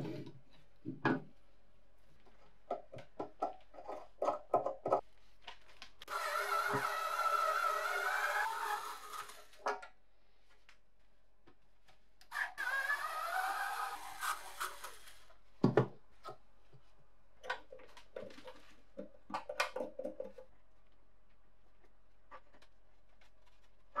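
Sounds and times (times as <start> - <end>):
cordless drill motor whine: 6.1 - 9.5.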